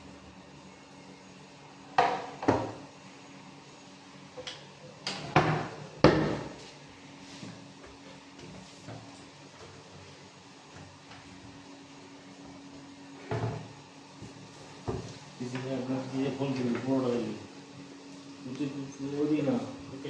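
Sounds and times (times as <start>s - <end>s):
cabinet doors knocking shut: 5.3s - 6.5s.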